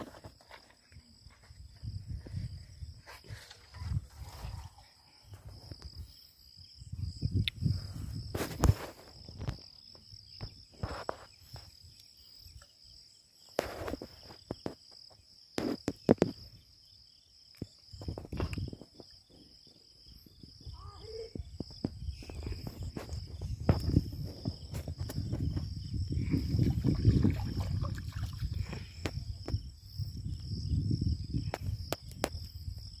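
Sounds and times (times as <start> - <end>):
wind rumble on microphone: 1.1 - 12.0, 17.8 - 33.0
insect trilling: 15.8 - 33.0.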